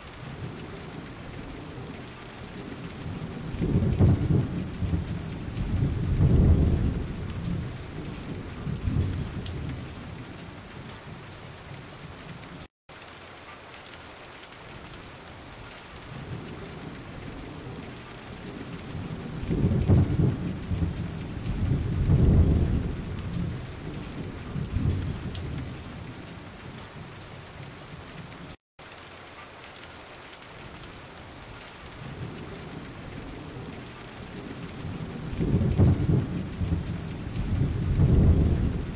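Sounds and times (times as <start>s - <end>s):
wind buffeting microphone: 35.4s - 38.9s.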